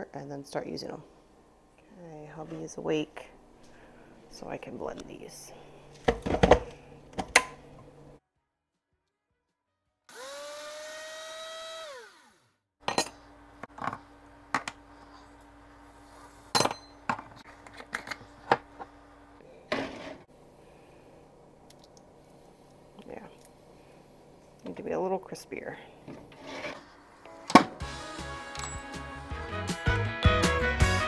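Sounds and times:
faint steady hum: 0.0 - 8.2, 12.9 - 27.4
blender grinding: 10.1 - 12.6.

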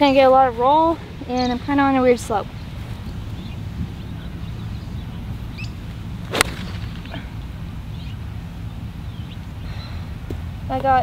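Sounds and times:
low outdoor rumble: 0.0 - 11.0
golf club striking ball: 6.2 - 7.2.

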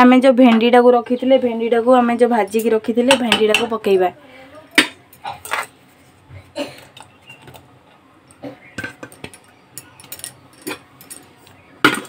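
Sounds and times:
metal spoon clinking on pots: 2.2 - 3.9, 8.7 - 12.0.

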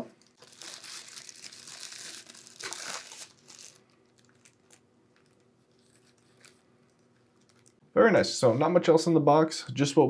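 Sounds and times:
plastic wrap rustling: 0.2 - 7.8.

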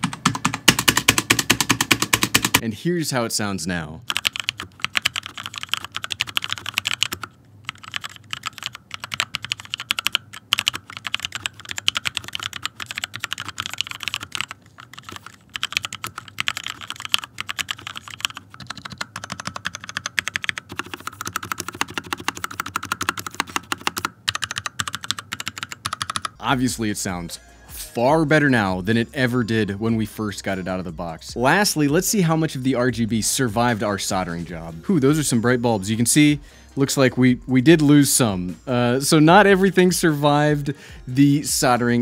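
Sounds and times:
mechanical keyboard typing: 0.0 - 2.6, 4.1 - 26.4.

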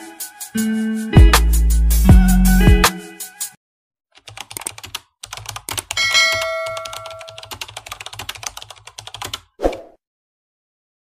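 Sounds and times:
keyboard typing clicks: 4.2 - 9.4
chime ringing: 6.0 - 7.4.

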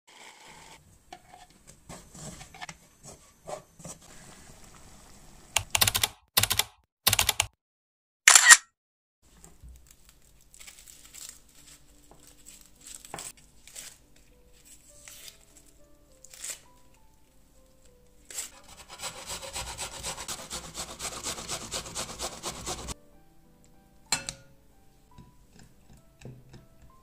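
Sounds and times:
knife scraping onion skin: 16.2 - 16.8, 18.3 - 23.0.

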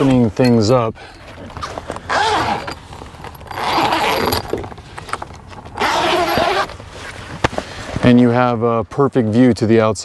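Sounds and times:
zipper unzipping: 1.5 - 4.7, 5.7 - 6.7.

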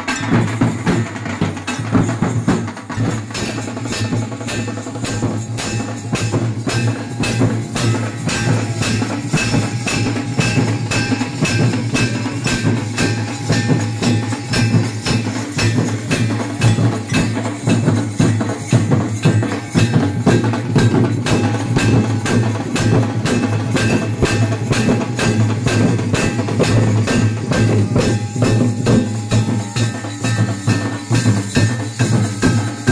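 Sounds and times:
barrel drums beaten with sticks: 0.0 - 32.9.

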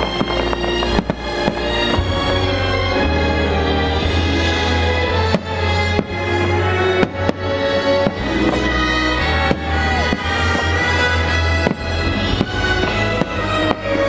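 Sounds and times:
fireworks bangs: 0.0 - 14.0
loud show music: 0.0 - 14.0.

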